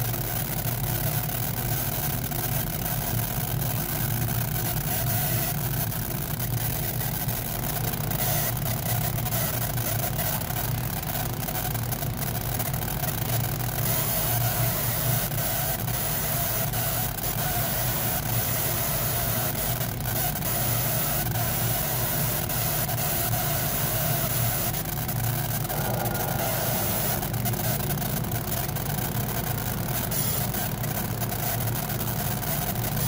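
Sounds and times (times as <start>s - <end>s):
laser engraver humming: 25.4s - 33.0s.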